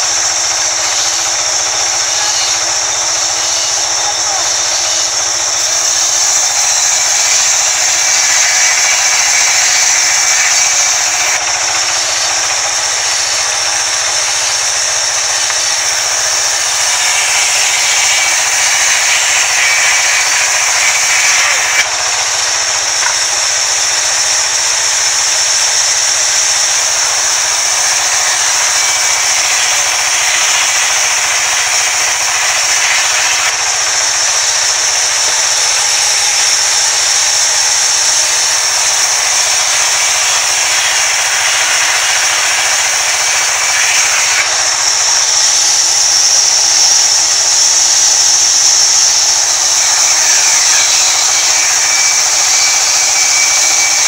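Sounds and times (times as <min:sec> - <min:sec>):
band saw cutting planks: 0:00.0 - 0:54.0.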